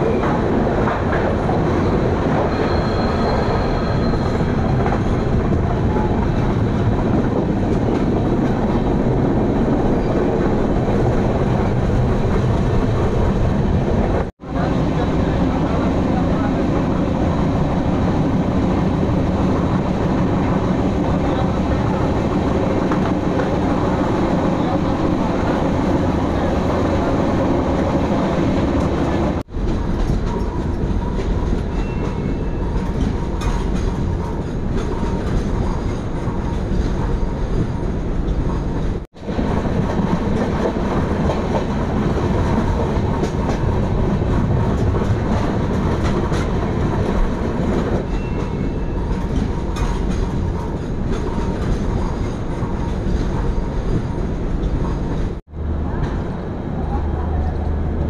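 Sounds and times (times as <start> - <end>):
train rumbling: 0.0 - 58.0.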